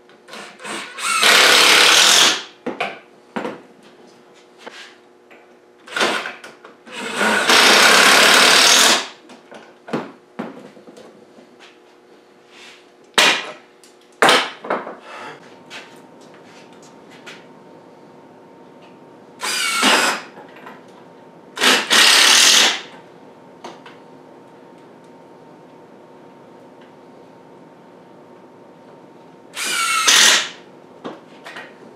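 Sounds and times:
impact driver driving screws: 0.3 - 2.4, 5.9 - 9.1, 19.4 - 20.3, 21.6 - 22.9, 29.6 - 30.6.

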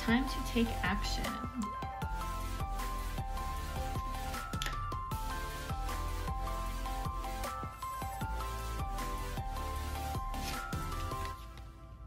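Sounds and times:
simple melody over steady beat: 1.3 - 11.3.

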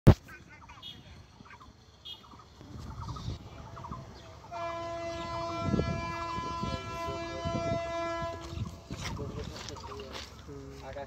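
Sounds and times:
train rumbling and thumping: 1.2 - 11.0
locomotive horn blast: 4.4 - 9.0.

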